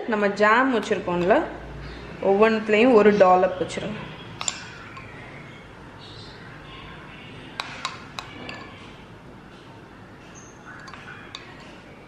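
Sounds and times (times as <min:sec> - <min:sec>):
spoon clinking against glass bowl: 0:04.3 - 0:05.3, 0:07.6 - 0:08.9, 0:10.7 - 0:11.9.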